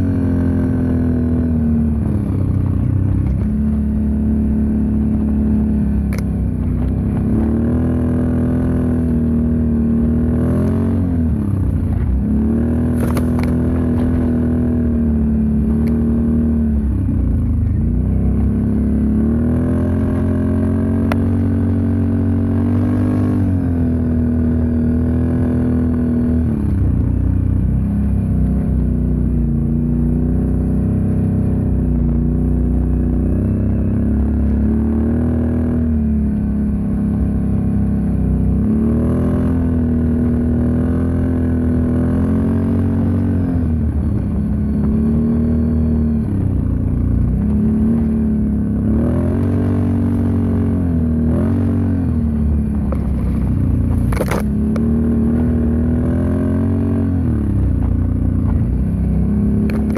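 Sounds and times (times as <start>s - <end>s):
engine revving: 0.0s - 59.9s.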